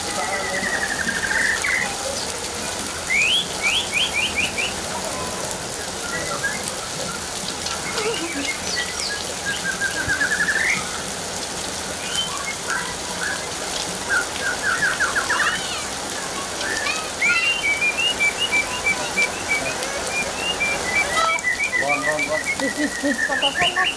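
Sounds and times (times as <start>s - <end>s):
heavy rain splashing: 0.0s - 23.9s
birds chirping and trilling: 0.1s - 23.9s.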